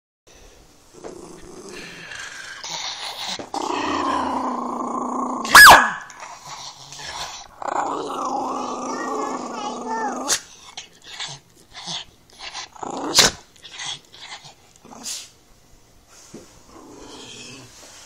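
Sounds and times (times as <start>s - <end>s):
dog growling: 0.9s - 5.5s, 6.2s - 15.2s, 16.7s - 17.8s
dog barking sharply: 5.5s - 6.1s.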